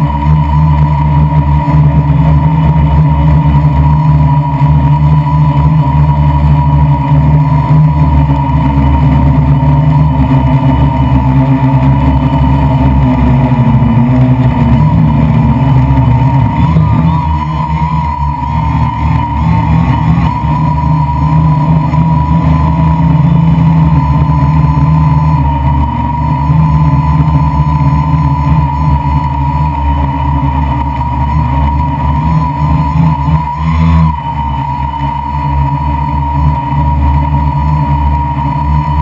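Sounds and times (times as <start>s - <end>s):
drone propellers buzzing: 0.0s - 39.0s.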